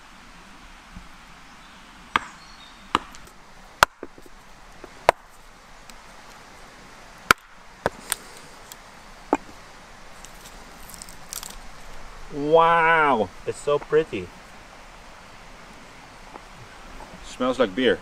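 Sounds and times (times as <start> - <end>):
axe splitting log: 2.2 - 5.3, 7.3 - 8.2.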